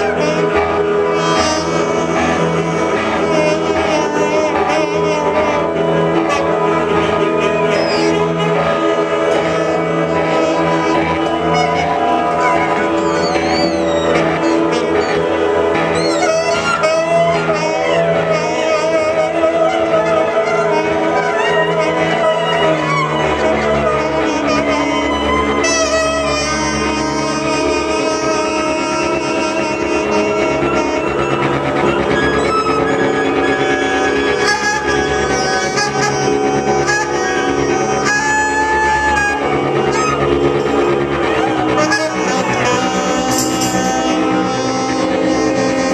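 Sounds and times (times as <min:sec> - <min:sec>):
experimental ensemble drone: 0:00.0 - 0:45.9
saxophones holding long notes: 0:00.0 - 0:45.9
wavering gliding high pitches: 0:00.9 - 0:45.9
bright high squeals: 0:12.2 - 0:15.3, 0:15.9 - 0:16.7.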